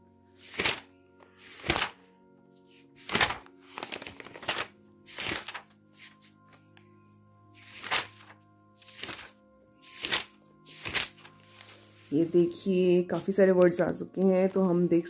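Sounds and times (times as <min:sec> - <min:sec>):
soft background music: 0:00.0 - 0:15.0
dictionary pages turning: 0:00.4 - 0:02.1, 0:02.7 - 0:06.9, 0:07.5 - 0:12.6.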